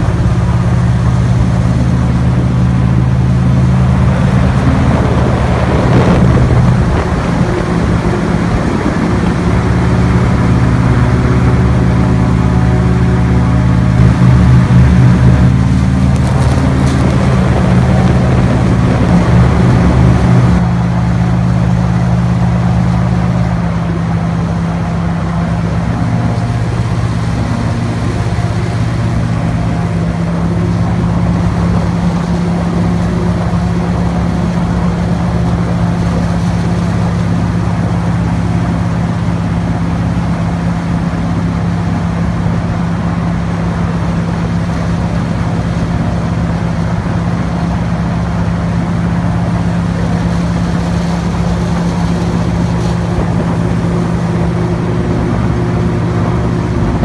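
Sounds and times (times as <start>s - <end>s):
airboat engine drone: 0.0s - 57.0s.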